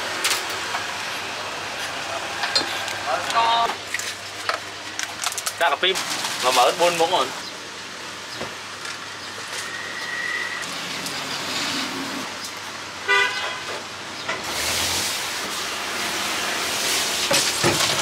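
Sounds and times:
street traffic noise: 0:00.0 - 0:18.0
vehicle horn toot: 0:13.0 - 0:13.8.

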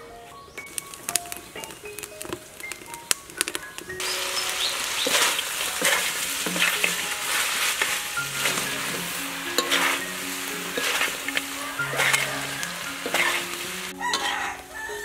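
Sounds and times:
meat sizzling in a wok: 0:03.4 - 0:15.0
metal spatula scraping a wok: 0:05.0 - 0:14.6.

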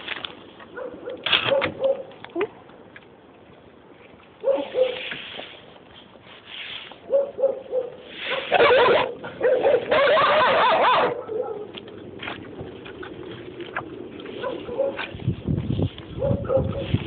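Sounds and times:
dogs barking: 0:00.7 - 0:02.1, 0:04.4 - 0:05.0, 0:07.1 - 0:11.8, 0:14.4 - 0:15.1, 0:16.2 - 0:17.0
dogs whining: 0:08.4 - 0:11.6.

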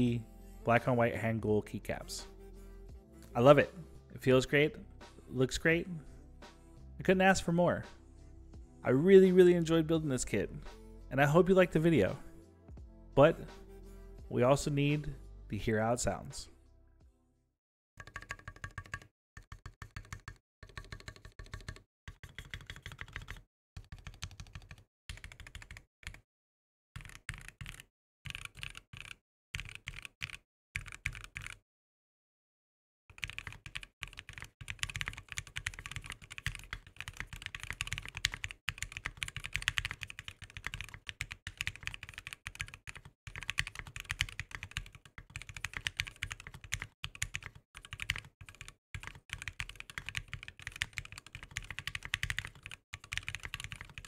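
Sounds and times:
mechanical keyboard typing: 0:18.0 - 0:26.2, 0:27.0 - 0:31.6, 0:33.1 - 0:54.0.

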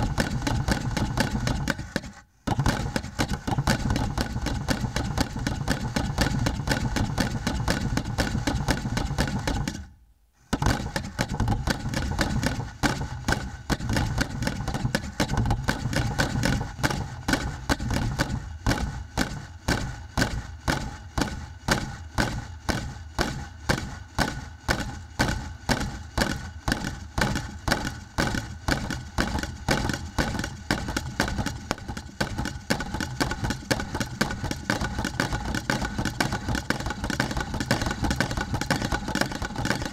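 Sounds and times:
steady hum: 0:00.0 - 0:08.7
sticks striking wooden boxes: 0:00.0 - 0:09.8, 0:10.5 - 0:39.9.

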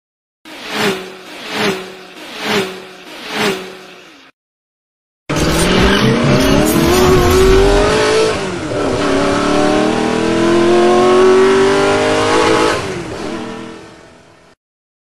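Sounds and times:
car engine accelerating: 0:05.3 - 0:13.7.

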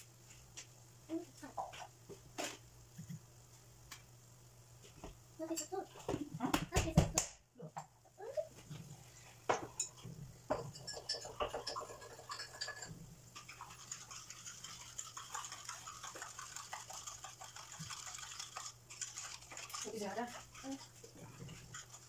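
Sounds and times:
oil sizzling in a frying pan: 0:10.5 - 0:22.0.

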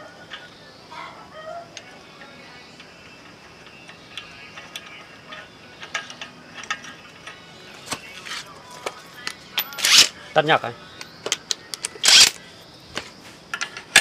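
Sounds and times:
metallic clicks of hand tools: 0:03.6 - 0:07.4, 0:09.2 - 0:10.1, 0:11.0 - 0:12.4.

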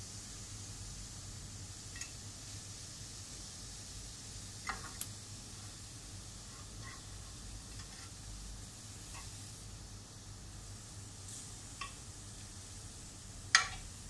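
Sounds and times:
zucchini sizzling on grill pan: 0:00.1 - 0:14.0
fork clicking against pan: 0:01.9 - 0:02.2, 0:11.8 - 0:12.0, 0:13.5 - 0:13.9.

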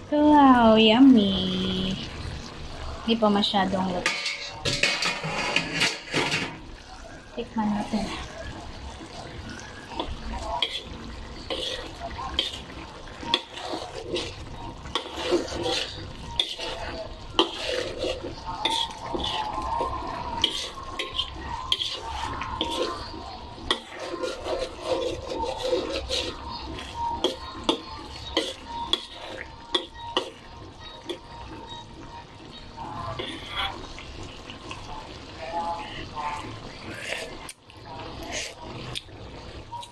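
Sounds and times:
metal spoon scraping a wok: 0:03.8 - 0:06.6, 0:09.5 - 0:31.8, 0:35.6 - 0:37.6.

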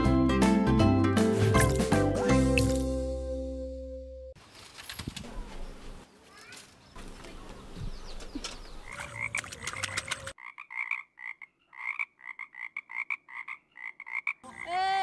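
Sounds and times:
background noise: 0:04.4 - 0:15.0
frogs croaking: 0:08.8 - 0:14.7.

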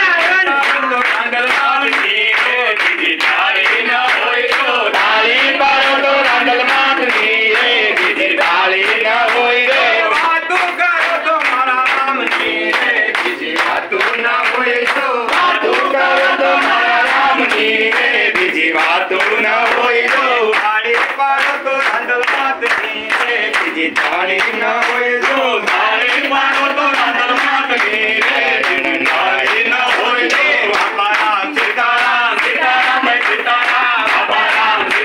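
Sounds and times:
group singing in unison: 0:00.0 - 0:35.0
hand-clapping in time: 0:00.0 - 0:35.0.

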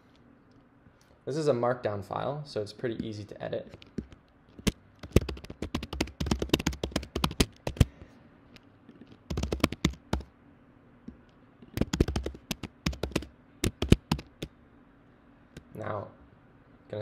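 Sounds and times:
typing on computer keyboard: 0:03.7 - 0:07.9, 0:08.9 - 0:10.3, 0:11.7 - 0:14.5.

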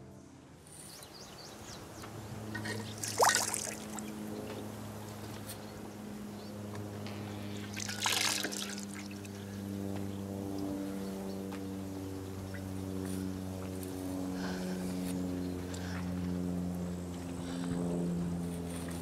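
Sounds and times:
low hum: 0:00.0 - 0:19.0
water splashing into basin: 0:02.9 - 0:04.1, 0:07.7 - 0:09.2.

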